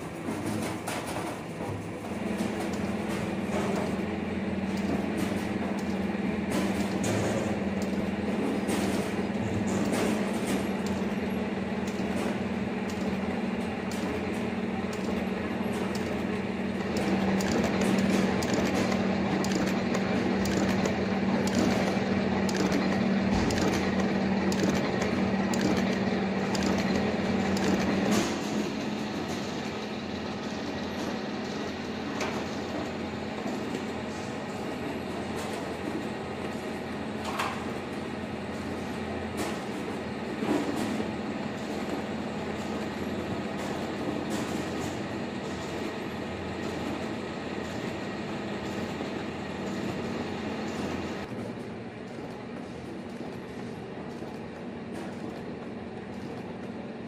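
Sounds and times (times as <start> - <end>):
machine parts clicking and clattering: 0.0 - 56.8
motor hum: 2.0 - 35.8.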